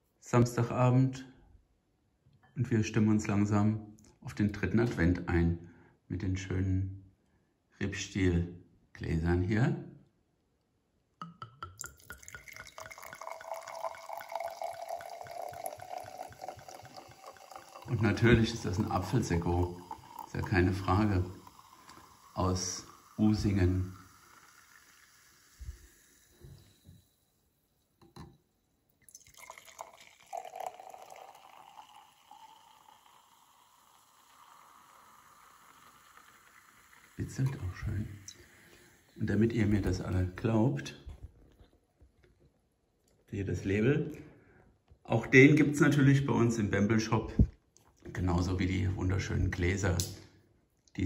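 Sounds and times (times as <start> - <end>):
ringing tone of filling glass: 11.2 - 28.2, 29.0 - 39.4
fizzy drink pouring into glass: 11.2 - 28.3, 29.0 - 40.4.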